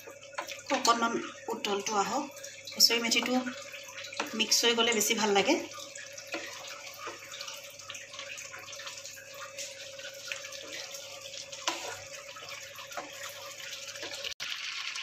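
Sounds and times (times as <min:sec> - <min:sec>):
gravy simmering and bubbling: 0:00.0 - 0:15.0
wooden spatula stirring: 0:03.1 - 0:14.4
spatula tapping a pan: 0:06.2 - 0:07.6.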